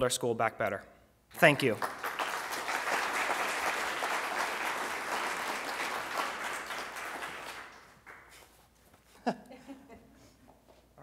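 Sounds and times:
audience applauding: 1.6s - 8.4s.

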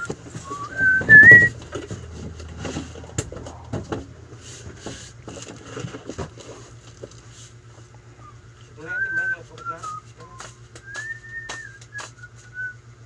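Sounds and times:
shop goods clattering: 0.0s - 7.1s
short whistled notes: 0.4s - 1.6s, 8.2s - 12.8s.

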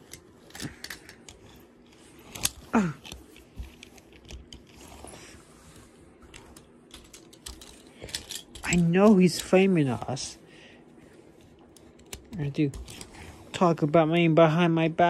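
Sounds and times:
toy cars clattering: 0.0s - 4.9s, 6.3s - 9.6s.

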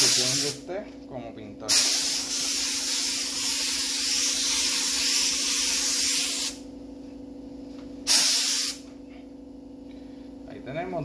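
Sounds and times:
spray gun hissing: 0.0s - 0.6s, 1.7s - 6.6s, 8.1s - 8.9s.

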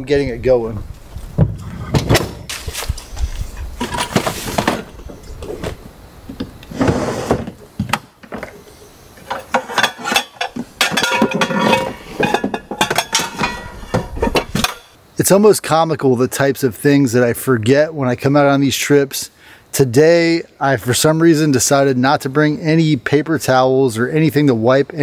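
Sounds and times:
rustling: 1.0s - 6.0s, 8.3s - 15.0s
cooking gear knocking and clattering: 9.2s - 15.0s.

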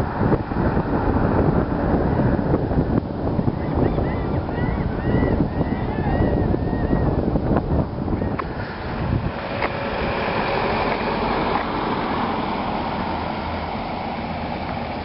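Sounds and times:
passing road traffic hiss: 7.4s - 15.0s.

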